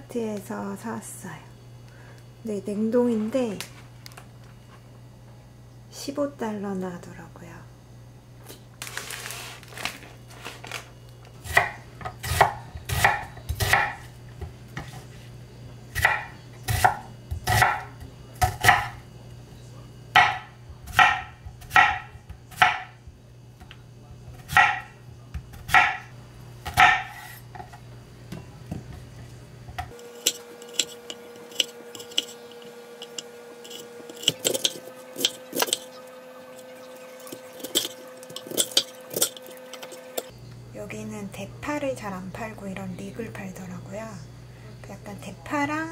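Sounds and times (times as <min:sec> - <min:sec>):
knife chopping on wooden board: 0:11.5 - 0:14.0, 0:16.0 - 0:19.0, 0:20.2 - 0:23.0, 0:24.4 - 0:24.9, 0:25.6 - 0:26.0, 0:26.7 - 0:27.3.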